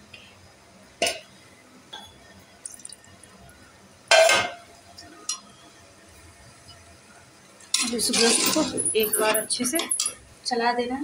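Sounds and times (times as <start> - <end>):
water splashing into pot: 2.6 - 3.3
metal utensils clinking on pot: 7.7 - 10.2.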